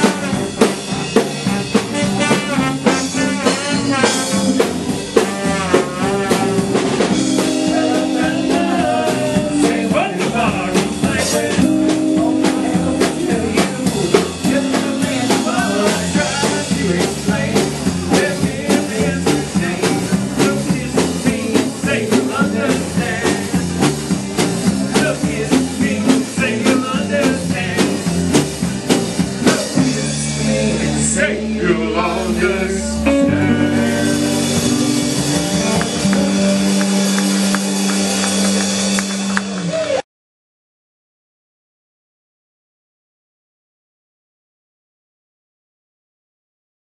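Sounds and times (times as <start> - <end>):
blues-rock song: 0.0 - 39.7.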